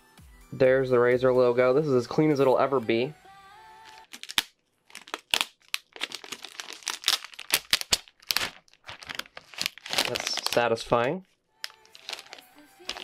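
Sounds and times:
plastic film peeling and crinkling: 3.8 - 13.0.

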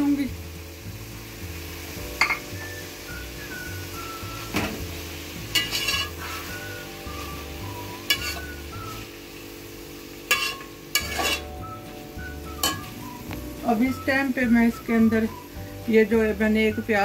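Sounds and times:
light sizzle of frying: 0.0 - 17.0
metal spoon scraping metal pot: 5.5 - 6.5, 8.1 - 8.5, 10.3 - 11.6.

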